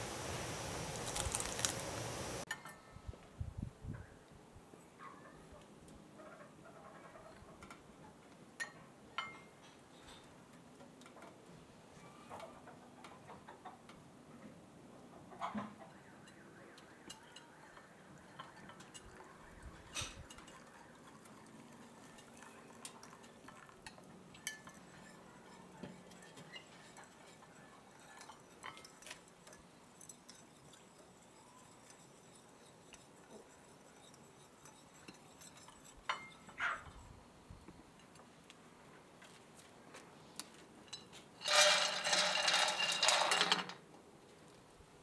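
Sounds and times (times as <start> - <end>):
dishes clinking on stone table: 2.5 - 3.0, 8.6 - 10.3, 17.0 - 37.0, 40.8 - 43.8.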